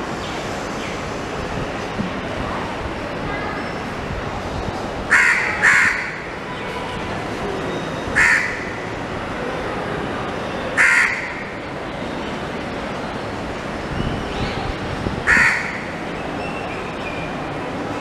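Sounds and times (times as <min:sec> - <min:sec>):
crow cawing: 0:05.1 - 0:06.3, 0:08.2 - 0:08.8, 0:10.8 - 0:11.5, 0:15.3 - 0:15.9.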